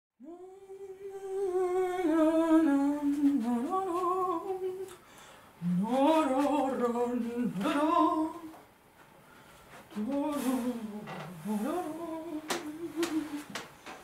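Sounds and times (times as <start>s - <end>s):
woman humming: 9.9s - 13.7s.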